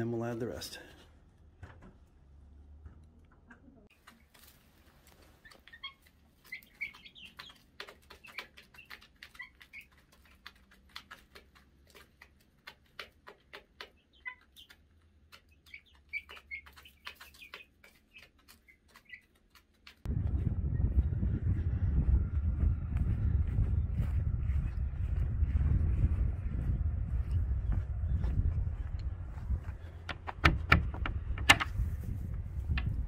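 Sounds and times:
chickens pecking plastic feeder: 3.9 - 20.1
soft chick chirps: 5.2 - 11.2, 13.0 - 19.7.

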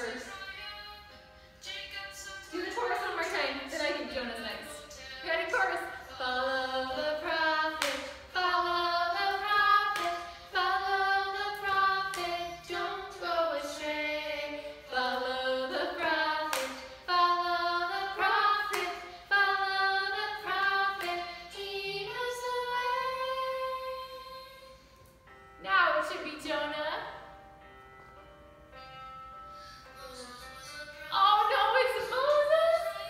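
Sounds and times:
woman and children singing: 0.0 - 24.8, 30.0 - 33.0.

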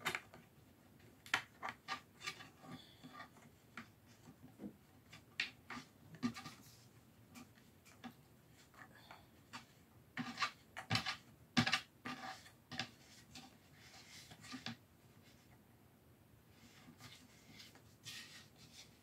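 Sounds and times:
plastic parts clicking and scraping: 0.0 - 14.8.

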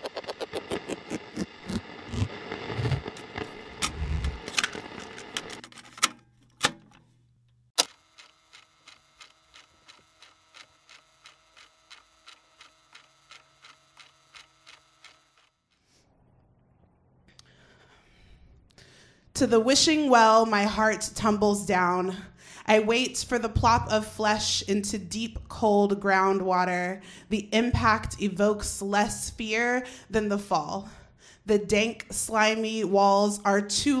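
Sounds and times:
steady hum: 0.0 - 5.6.

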